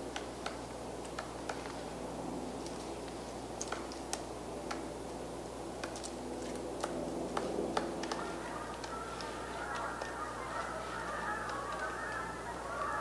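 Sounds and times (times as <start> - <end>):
steady low background noise: 0.0 - 13.0
woodpecker knocking on wood: 6.8 - 12.2.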